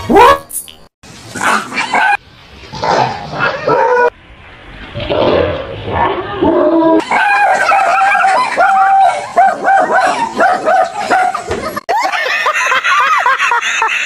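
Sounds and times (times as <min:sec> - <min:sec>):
dog yapping: 0:07.0 - 0:11.5
people laughing: 0:07.1 - 0:09.3, 0:10.0 - 0:14.0.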